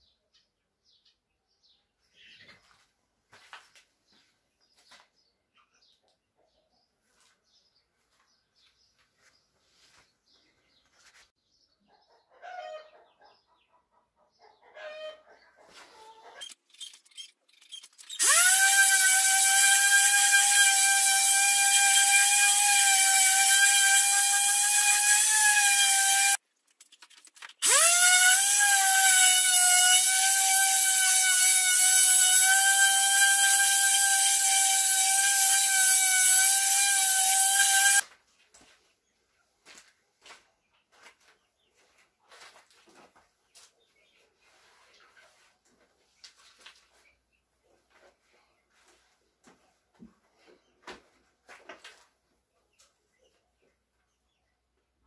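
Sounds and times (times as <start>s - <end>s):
power tool motor whining: 16.4s - 26.4s, 27.6s - 38.0s.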